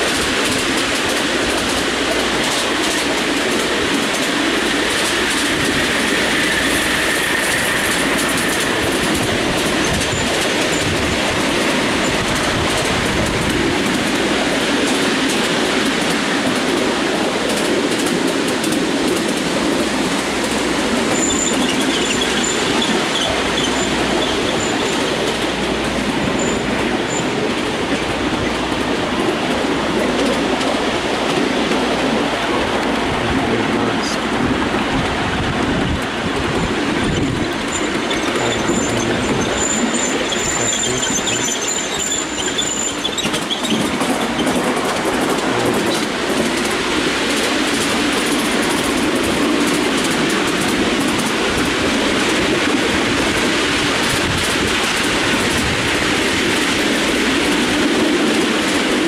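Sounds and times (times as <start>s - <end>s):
train wheels rumbling on rails: 0.0s - 59.0s
high wheel squeal: 5.8s - 10.9s, 21.0s - 25.1s, 26.3s - 27.4s, 37.0s - 44.6s.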